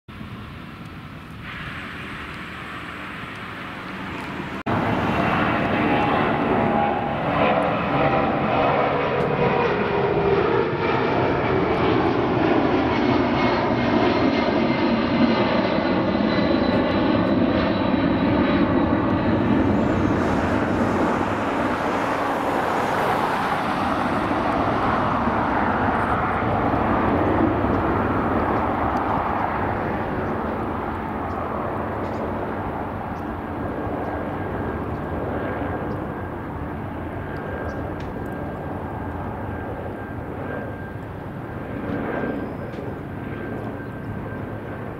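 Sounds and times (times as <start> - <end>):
jet engine roar climbing out: 0.1 - 44.9.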